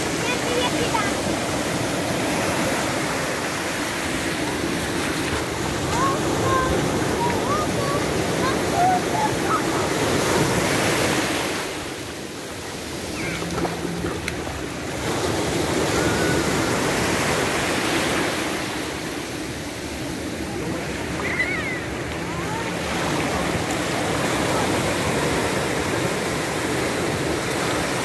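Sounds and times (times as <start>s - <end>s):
ocean surf breaking on beach: 0.0s - 28.0s.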